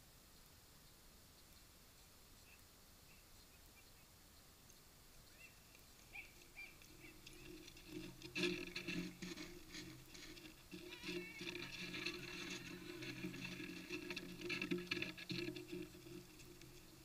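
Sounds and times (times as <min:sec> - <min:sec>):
horse hooves on packed snow: 0:05.3 - 0:17.0.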